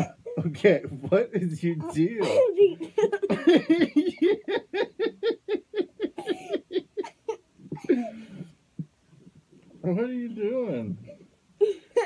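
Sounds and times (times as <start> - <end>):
girl giggling: 1.8 - 8.5, 11.6 - 12.0.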